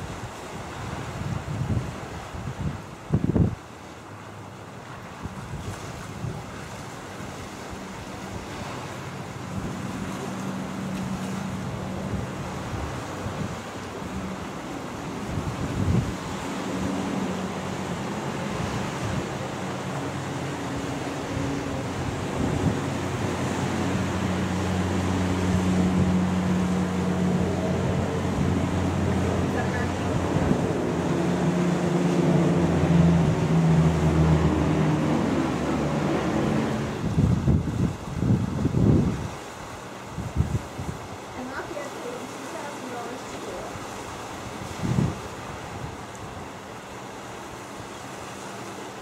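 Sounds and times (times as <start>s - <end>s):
wind buffeting microphone: 0.0s - 3.7s, 5.1s - 41.9s, 43.9s - 46.7s
turboprop engines rushing: 6.3s - 43.2s.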